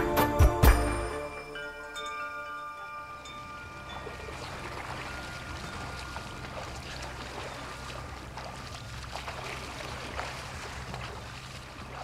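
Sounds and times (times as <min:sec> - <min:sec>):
low steady hum: 0:01.0 - 0:12.0
water lapping among rocks: 0:03.4 - 0:12.0
small splashes: 0:03.8 - 0:12.0.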